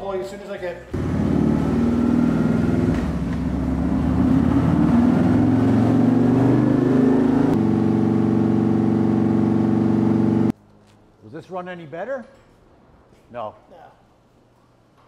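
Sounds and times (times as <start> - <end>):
motorcycle engine revving on dyno: 1.0 - 10.5.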